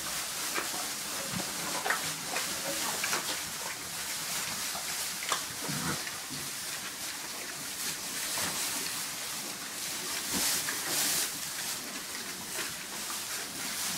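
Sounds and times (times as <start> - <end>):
piglets rustling in straw: 0.0 - 13.9
pig grunts: 5.6 - 6.1.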